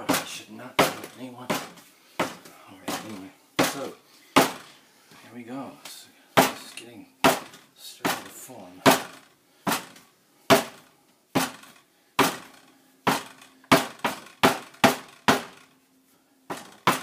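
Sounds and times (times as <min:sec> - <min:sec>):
sharp knocks on kitchenware: 0:00.0 - 0:04.7, 0:06.4 - 0:06.6, 0:07.2 - 0:09.9, 0:10.5 - 0:10.8, 0:11.4 - 0:15.6, 0:16.5 - 0:17.0.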